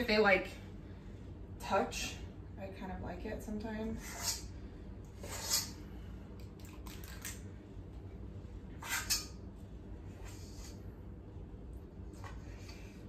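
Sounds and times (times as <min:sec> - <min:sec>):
metal scoop scraping pot: 0:04.0 - 0:04.5, 0:05.2 - 0:05.8, 0:08.8 - 0:09.4.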